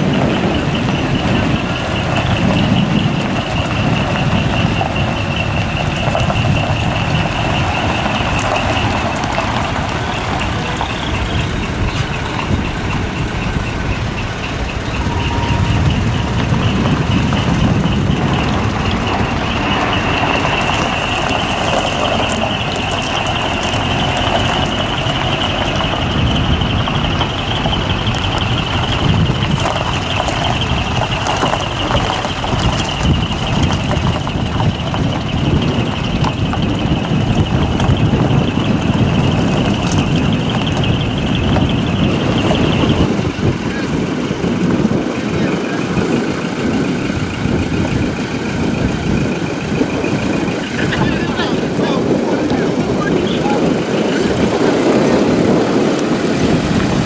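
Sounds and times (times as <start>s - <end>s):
diesel truck engine running: 0.0s - 57.0s
electronic warning tone: 0.1s - 29.4s.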